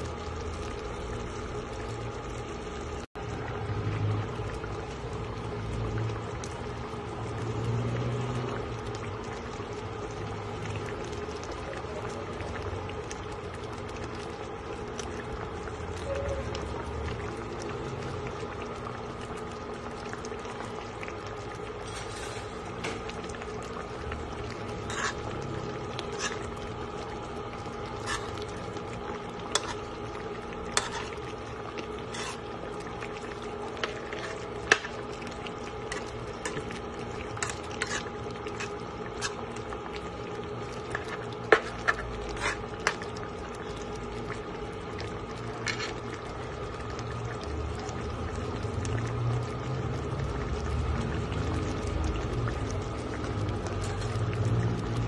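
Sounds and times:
thick sauce bubbling and popping: 0.0 - 55.0
steady hum: 8.6 - 49.1.

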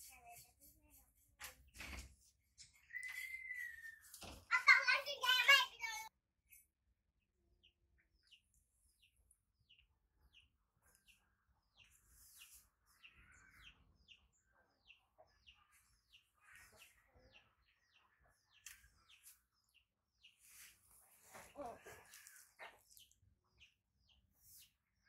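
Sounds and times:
high-pitched falling chirps: 2.9 - 4.1.

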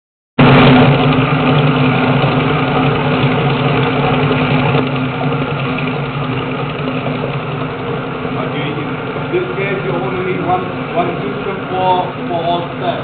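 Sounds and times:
grinding mill running: 0.4 - 13.0.

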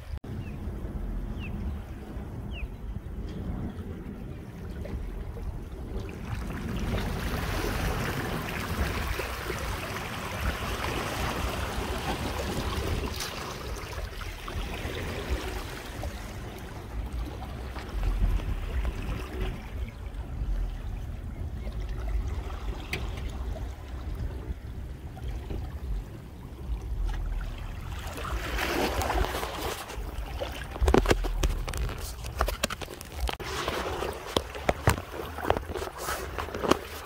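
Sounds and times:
low rumble: 0.0 - 9.7, 14.0 - 32.6
small waves lapping on rocks: 4.6 - 37.0.

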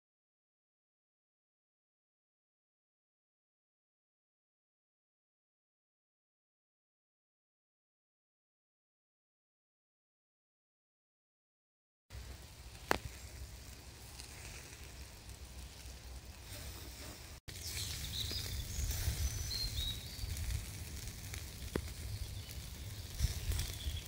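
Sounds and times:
low outdoor rumble: 12.1 - 24.0
meat sizzling over charcoal: 12.1 - 24.0.

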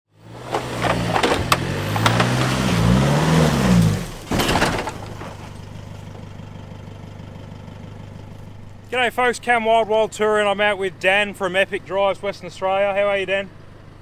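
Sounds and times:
engine revving and idling: 0.1 - 4.3, 5.4 - 8.9
knocks and clatter over rough ground: 0.3 - 6.6
loud crunch: 0.4 - 6.3.

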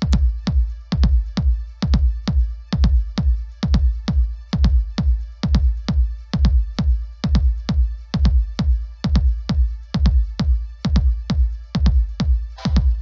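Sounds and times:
electronic music with kick drums: 0.0 - 13.0.

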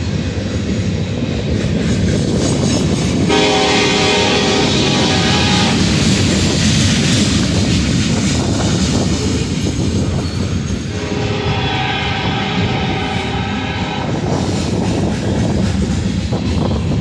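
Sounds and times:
train wheels clattering on rails: 0.0 - 17.0
locomotive horn: 3.3 - 6.2, 10.9 - 14.4.

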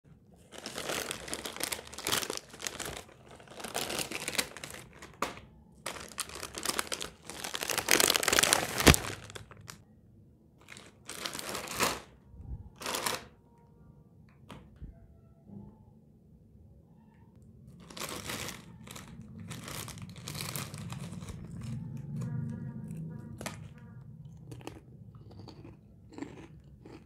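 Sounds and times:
plastic packets crinkling: 0.4 - 9.8, 10.6 - 12.2, 12.8 - 13.3, 17.8 - 22.2.

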